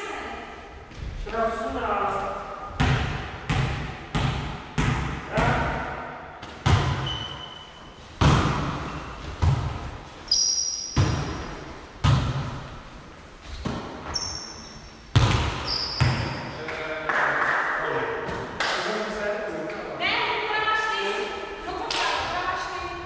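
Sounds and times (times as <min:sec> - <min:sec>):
shoes squeaking on wooden floor: 0:10.1 - 0:11.7, 0:13.4 - 0:15.0
hands slapping volleyball: 0:15.2 - 0:19.0.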